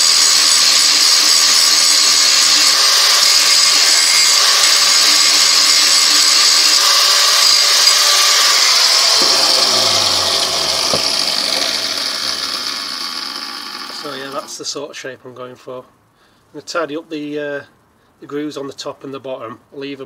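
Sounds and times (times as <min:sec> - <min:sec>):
angle grinder grinding steel: 0:00.0 - 0:14.6
grinder spinning down: 0:00.0 - 0:14.6.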